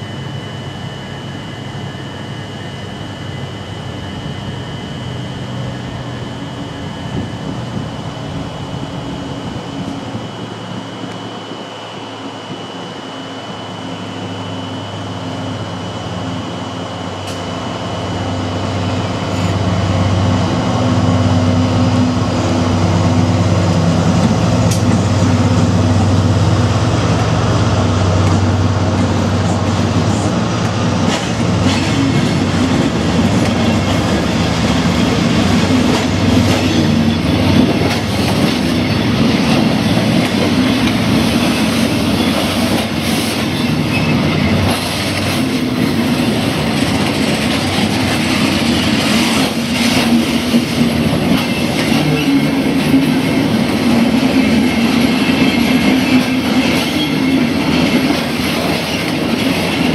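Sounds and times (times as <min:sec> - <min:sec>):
diesel locomotive engine drone: 0:00.0 - 0:59.9
wagons clacking over rail joints: 0:28.2 - 0:59.9
faint high wheel squeal: 0:33.4 - 0:59.9.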